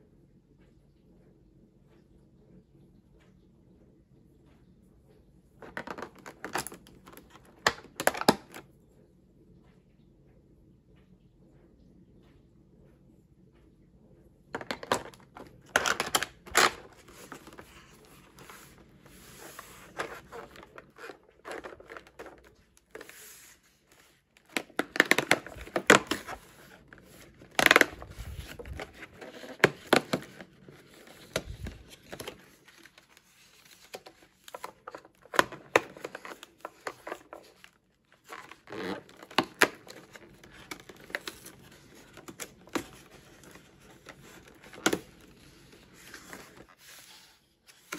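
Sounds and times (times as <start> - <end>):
cardboard tearing and crinkling: 24.4 - 46.7.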